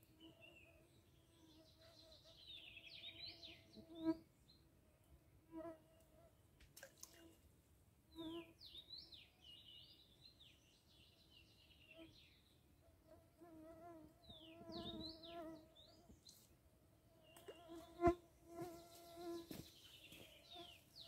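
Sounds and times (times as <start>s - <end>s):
fly buzzing: 17.4s - 19.6s.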